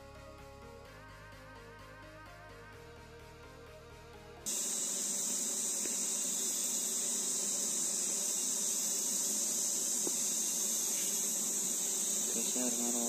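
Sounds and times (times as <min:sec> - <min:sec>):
bees buzzing: 0:04.5 - 0:13.0
insects shrilling: 0:04.5 - 0:13.0.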